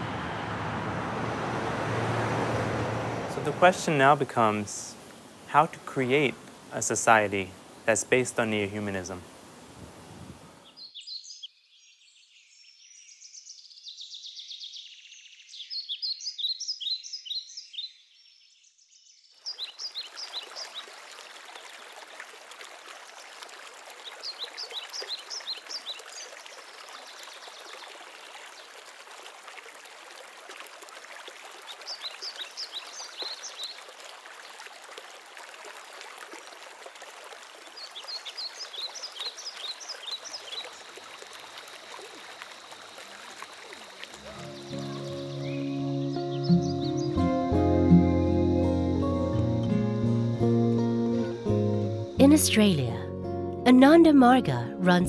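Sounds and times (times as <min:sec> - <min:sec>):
stream rushing: 0:00.0 - 0:10.6, 0:19.6 - 0:45.9
birds chirping: 0:10.6 - 0:20.9, 0:31.7 - 0:33.9, 0:37.7 - 0:41.0, 0:43.6 - 0:49.8.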